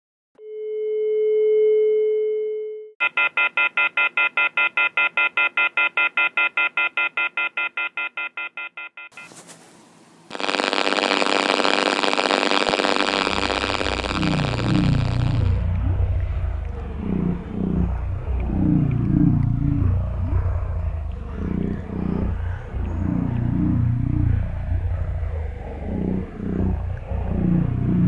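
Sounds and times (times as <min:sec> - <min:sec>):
steady telephone tone: 0:00.4 - 0:09.3, 0:10.3 - 0:15.7
loud harsh noise: 0:10.3 - 0:28.0
low rumble: 0:13.1 - 0:28.0.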